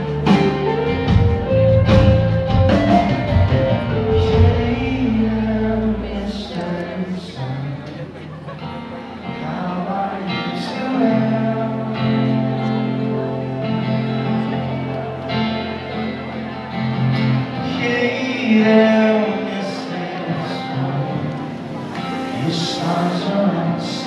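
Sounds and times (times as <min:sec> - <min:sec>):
bass guitar: 0:00.0 - 0:07.7, 0:08.6 - 0:24.0
electric guitar: 0:00.0 - 0:24.0
man singing: 0:03.3 - 0:08.3, 0:09.2 - 0:13.3, 0:17.4 - 0:24.0.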